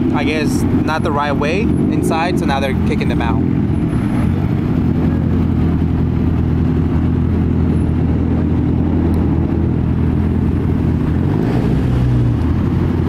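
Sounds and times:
car engine running at low revs: 0:00.0 - 0:13.0.

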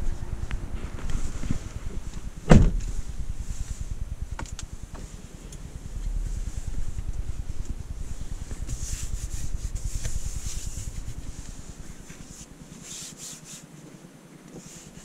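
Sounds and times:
car engine starting: 0:00.0 - 0:12.8
car door shutting: 0:00.8 - 0:03.0.

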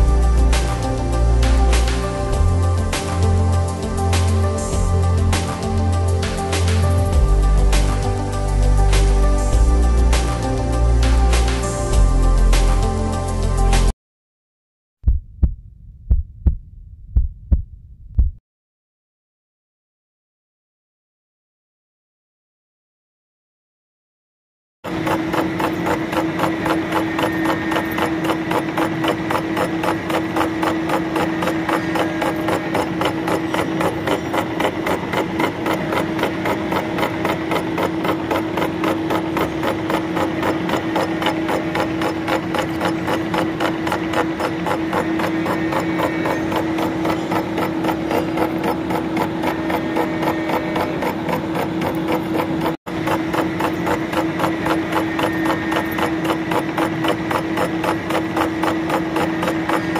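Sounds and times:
cutter chattering on metal: 0:24.9 - 0:59.9
milling machine hum: 0:24.9 - 0:59.9.

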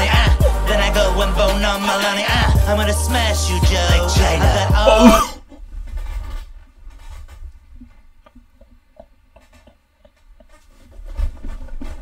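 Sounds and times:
faint rustling and tapping: 0:05.5 - 0:12.0.

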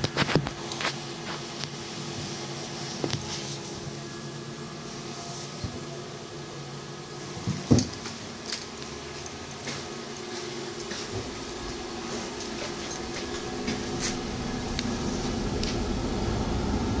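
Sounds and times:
tram car hum: 0:08.1 - 0:17.0.

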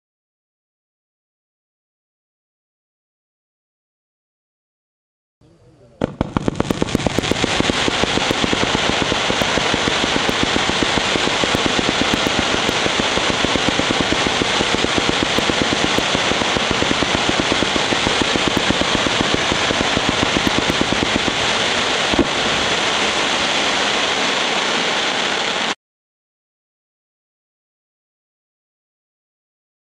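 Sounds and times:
dense crackle of fireworks: 0:06.0 - 0:25.8
fireworks cake firing: 0:06.0 - 0:25.8.

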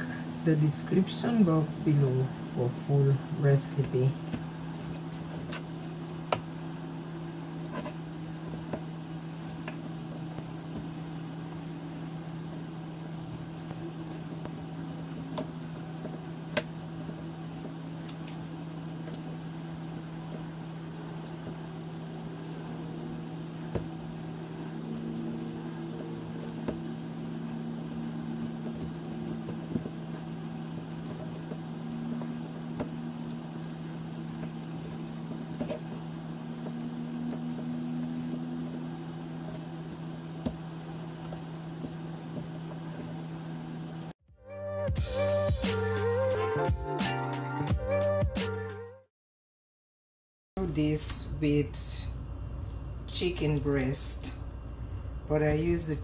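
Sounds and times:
steady low hum: 0:00.0 - 0:44.2, 0:50.6 - 0:56.0
meat squishing and scraping: 0:04.0 - 0:44.2.

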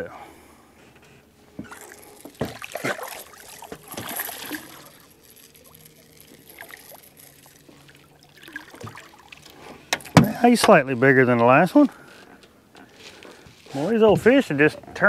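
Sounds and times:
water splashing against boat: 0:01.6 - 0:10.4
rod and reel clicking: 0:01.7 - 0:11.1.

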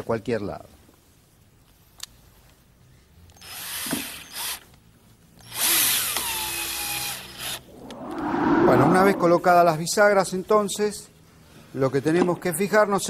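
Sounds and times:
cordless drill driving screws: 0:03.4 - 0:04.6.

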